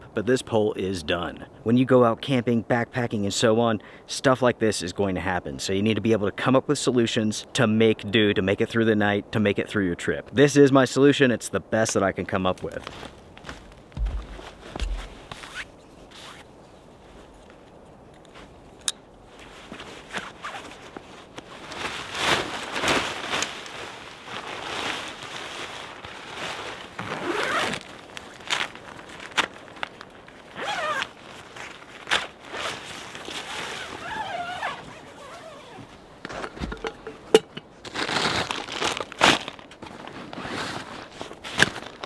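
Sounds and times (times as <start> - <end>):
tent fabric rustling: 12.6 - 17.7, 18.3 - 42.0
footsteps crunching in snow: 12.7 - 17.5, 37.8 - 42.0
zipper pulled: 14.8 - 16.5, 20.0 - 20.8, 27.0 - 27.9, 30.6 - 31.2, 32.1 - 35.9.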